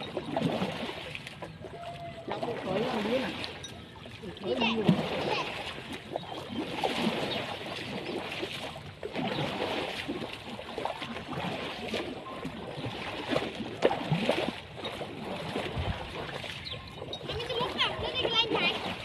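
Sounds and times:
poles splashing through water: 0:00.0 - 0:19.0.

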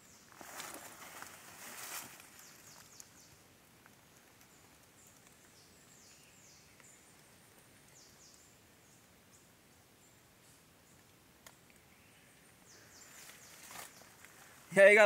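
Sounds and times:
faint clicks: 0:03.8 - 0:05.6, 0:06.7 - 0:08.4, 0:10.9 - 0:11.9.

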